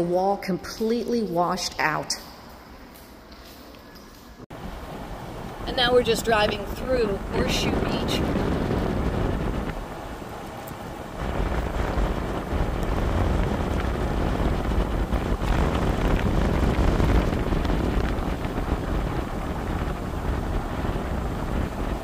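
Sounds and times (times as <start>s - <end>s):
car road noise: 4.5s - 22.0s
wind rumble on microphone: 4.5s - 22.0s.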